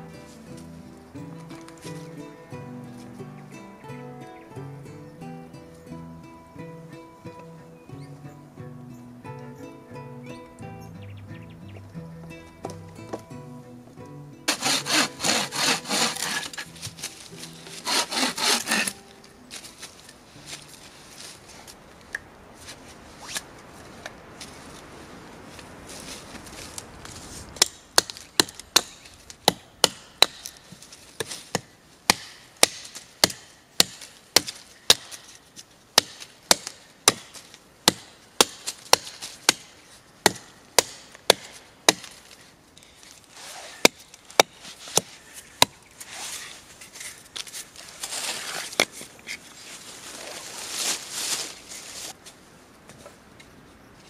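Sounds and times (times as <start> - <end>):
hand tool striking wood: 14.5 - 19.1, 27.6 - 42.3, 43.8 - 45.8
soft rustling: 14.5 - 29.4, 41.6 - 54.0
faint scraping: 44.5 - 52.4.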